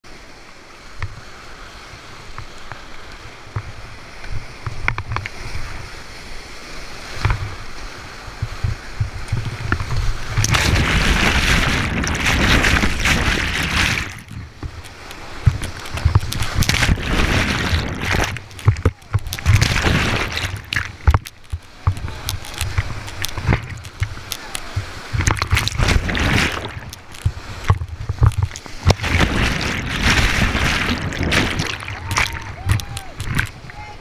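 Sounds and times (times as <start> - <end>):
water splashing: 2.0 - 34.0
whitewater rushing: 5.5 - 34.0
wind buffeting microphone: 7.2 - 34.0.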